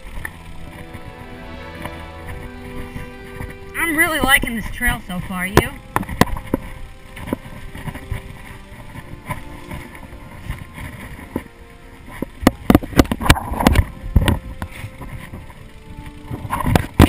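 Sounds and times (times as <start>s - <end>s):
bike knocking and rattling: 0.0s - 1.1s, 1.7s - 17.0s.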